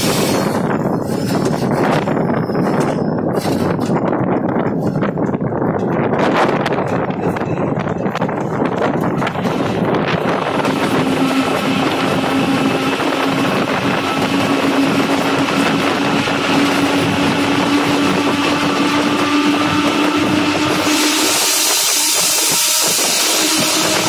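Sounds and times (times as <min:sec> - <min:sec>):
diesel locomotive running: 0:00.0 - 0:24.0
hum rising in pitch: 0:09.8 - 0:24.0.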